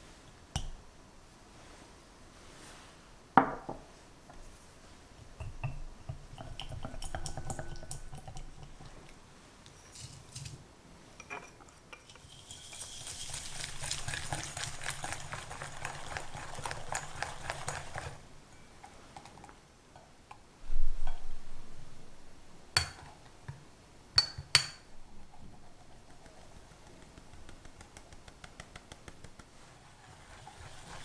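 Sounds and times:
whisk beating in glass bowl: 12.2 - 18.2, 25.9 - 31.0.

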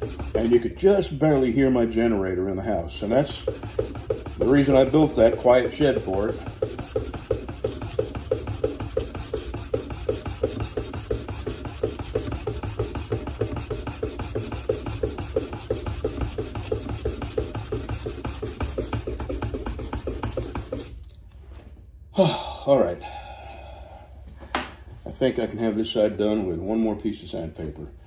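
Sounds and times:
sandpaper scraping knife blade: 0.0 - 0.8, 3.0 - 21.0.

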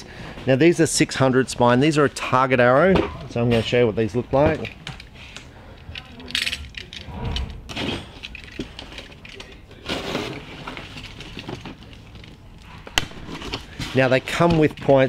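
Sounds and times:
cardboard boxes rustling: 7.7 - 15.0.

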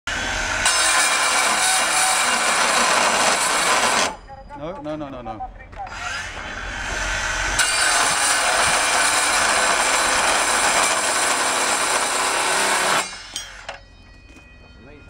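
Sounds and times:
circular saw cutting steel bar: 0.1 - 4.2, 5.9 - 13.7.

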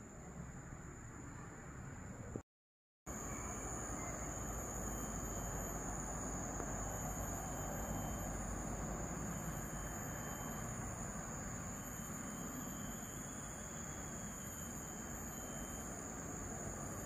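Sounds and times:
insects chirring: 3.1 - 17.0.

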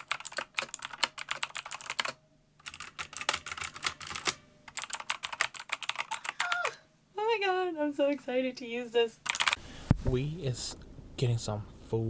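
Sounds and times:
keyboard keys clicking: 0.0 - 6.5, 9.3 - 9.6.

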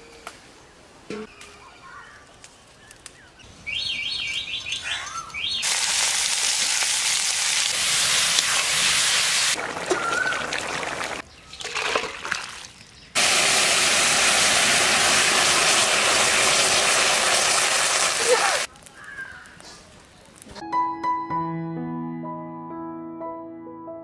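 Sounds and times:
curry sizzling and bubbling: 5.6 - 20.5.

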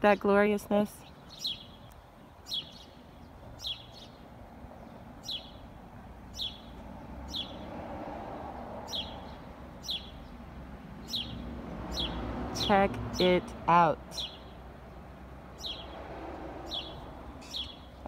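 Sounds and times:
small bird chirping: 1.0 - 4.2, 4.8 - 5.6, 6.3 - 7.7, 8.9 - 10.4, 11.0 - 13.4, 14.1 - 14.6, 15.6 - 16.0, 16.7 - 18.0.

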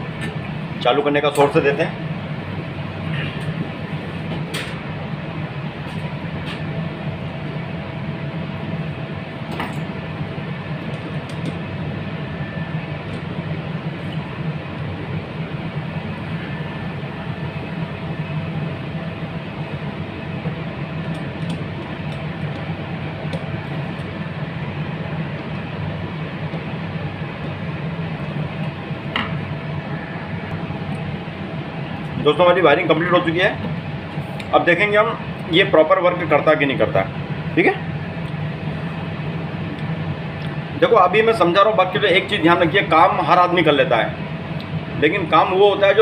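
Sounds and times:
rumbling workshop noise: 0.0 - 46.0.

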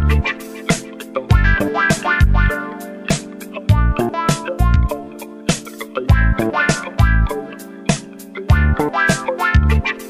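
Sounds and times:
deep bass notes: 0.0 - 0.2, 1.3 - 2.5, 3.7 - 4.9, 6.1 - 7.3, 8.5 - 8.9, 9.6 - 9.8
instrumental music with steady beat: 0.0 - 10.0.

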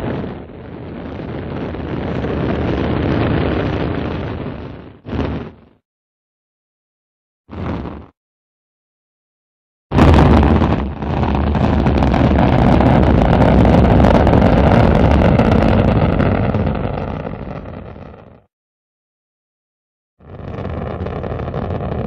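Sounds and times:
rocket engine roaring: 0.0 - 5.7, 9.9 - 18.4, 20.2 - 22.0.

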